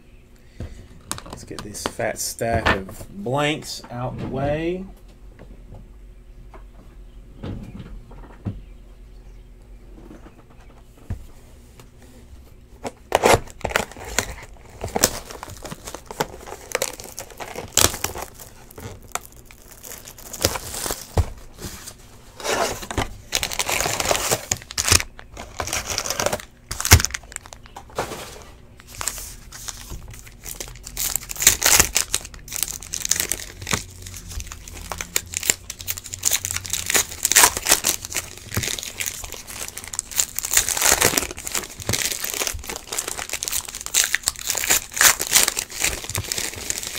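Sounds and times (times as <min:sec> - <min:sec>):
packaging crinkling: 0:12.8 - 0:46.9
wrapper tearing: 0:13.1 - 0:21.2, 0:22.4 - 0:27.7, 0:28.8 - 0:46.9
tapping on packs: 0:28.8 - 0:46.9.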